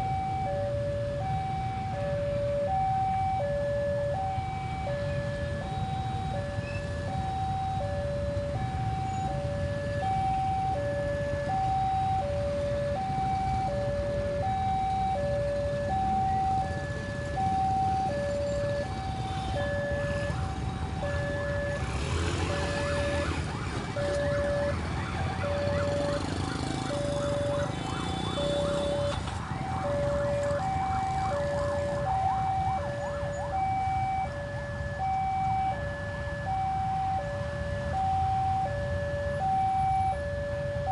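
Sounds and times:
motorcycle engines rumbling: 0:00.0 - 0:40.9
two-tone crossing alarm: 0:00.0 - 0:40.9
motorcycle engines revving: 0:15.6 - 0:34.5.

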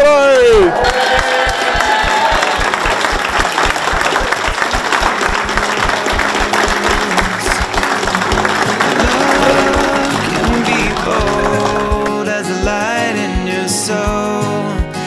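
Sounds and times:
crowd applauding: 0:00.4 - 0:12.5
music playing: 0:03.3 - 0:15.0.

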